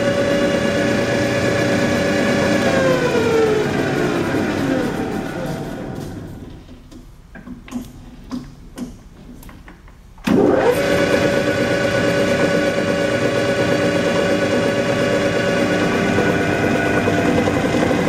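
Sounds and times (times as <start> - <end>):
metal lathe running: 0.0 - 6.0, 10.4 - 18.0.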